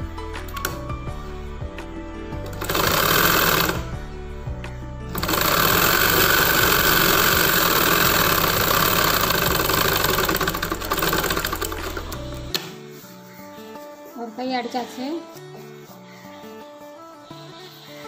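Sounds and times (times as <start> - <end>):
sewing machine stitching: 2.5 - 3.9, 5.1 - 12.4.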